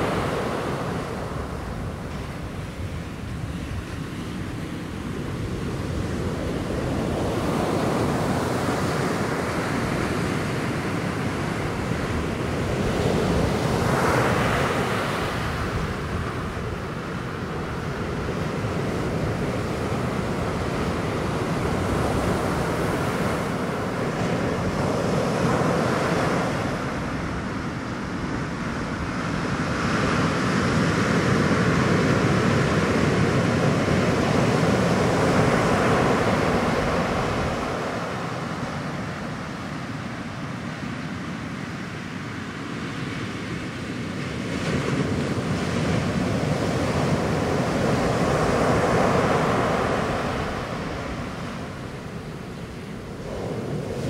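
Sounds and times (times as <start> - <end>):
ocean surf breaking: 0.0 - 54.0.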